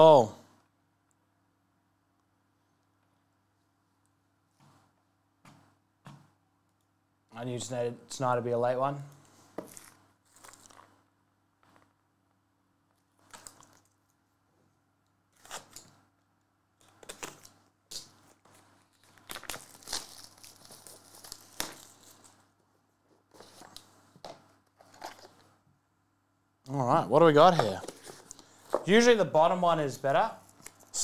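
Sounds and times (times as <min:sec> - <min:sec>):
plastic shrink wrap crinkling and tearing: 0:09.8 - 0:11.0, 0:16.8 - 0:22.5.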